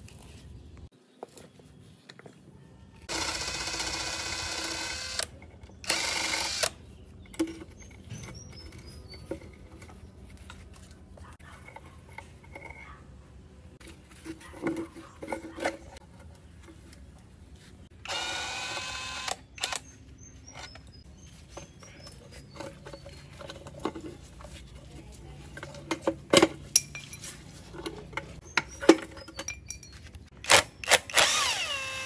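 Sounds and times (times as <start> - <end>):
small power tool running: 3.1 - 6.8, 18.0 - 19.8, 30.5 - 32.0.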